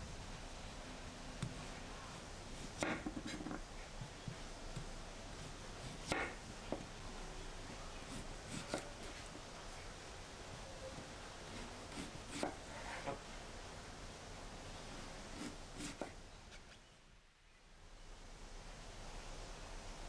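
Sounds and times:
knife slicing radish: 0:02.5 - 0:03.6, 0:04.3 - 0:06.4, 0:08.0 - 0:09.4, 0:11.5 - 0:13.2, 0:15.0 - 0:16.7.

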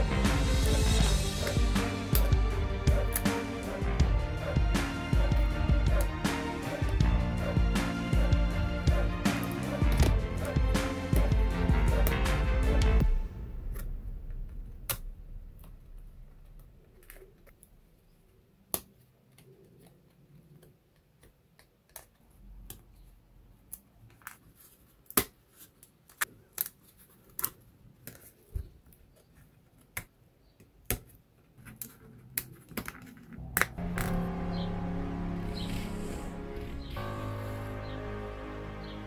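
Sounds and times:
background music: 0:00.0 - 0:16.5, 0:33.4 - 0:39.0
wooden pieces clicking and snapping: 0:29.7 - 0:34.2.

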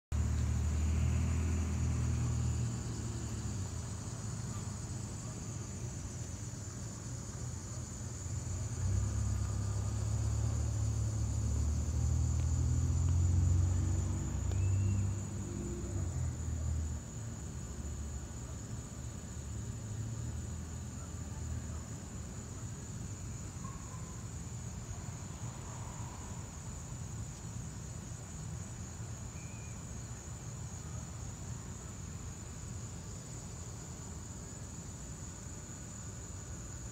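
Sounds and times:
low outdoor rumble: 0:00.1 - 0:28.9
insects droning: 0:00.2 - 0:36.9.

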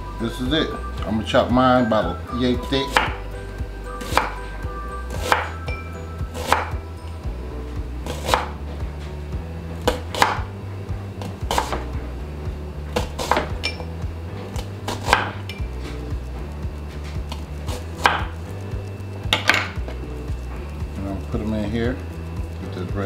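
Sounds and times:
knife slicing onion on cutting board: 0:02.9 - 0:03.2, 0:04.0 - 0:04.4, 0:05.1 - 0:05.6, 0:06.4 - 0:06.7, 0:08.0 - 0:08.6, 0:09.9 - 0:10.5, 0:11.5 - 0:11.8, 0:13.0 - 0:13.6, 0:14.6 - 0:16.0.

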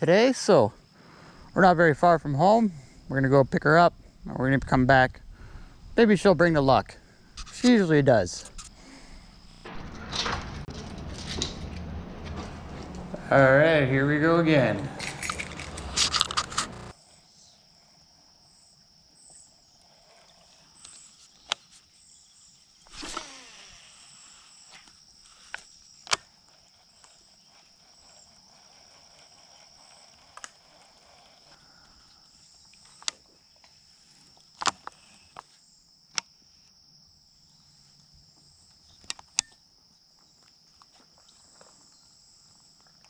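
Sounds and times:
insects trilling: 0:00.0 - 0:09.7, 0:13.2 - 0:43.0
brief rustle: 0:14.7 - 0:17.0.

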